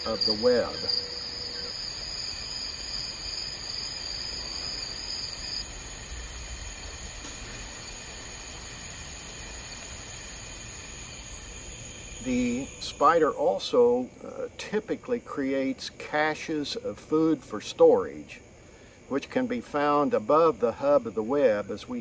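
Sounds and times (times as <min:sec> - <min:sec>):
high-pitched insect pulsing: 0:00.0 - 0:13.0
insect trills: 0:00.0 - 0:22.0.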